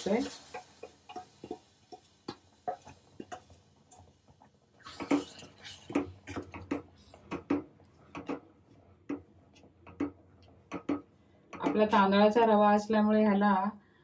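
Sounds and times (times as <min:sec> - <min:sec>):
wooden spatula scraping pot: 0:04.8 - 0:12.0.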